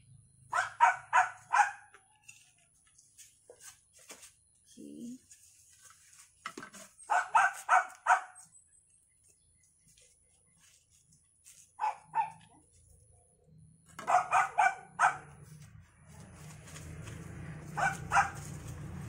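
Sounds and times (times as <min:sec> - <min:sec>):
dog barking: 0:00.5 - 0:01.9, 0:07.1 - 0:08.4, 0:11.8 - 0:12.6, 0:14.0 - 0:15.4, 0:17.7 - 0:18.5.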